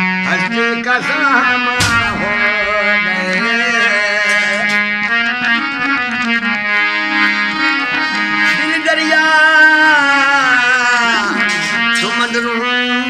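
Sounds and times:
harmonium melody over drone: 0:00.0 - 0:13.0
man singing: 0:00.1 - 0:04.9, 0:08.3 - 0:13.0.

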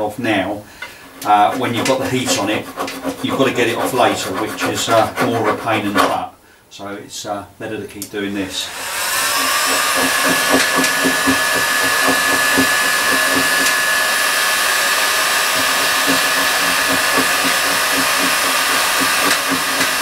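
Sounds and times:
heat gun fan whine: 0:08.3 - 0:20.0.

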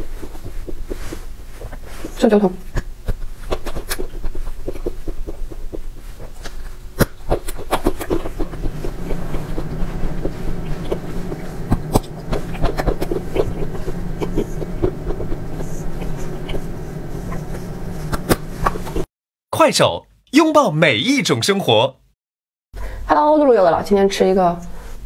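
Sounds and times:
person chewing dessert: 0:02.7 - 0:18.8
low steady hum: 0:08.2 - 0:19.1.

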